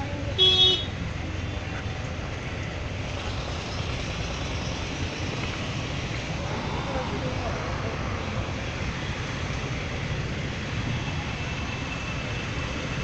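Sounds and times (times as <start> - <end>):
low rumble of road traffic: 0.0 - 13.0
vehicle horn honk: 0.4 - 0.9.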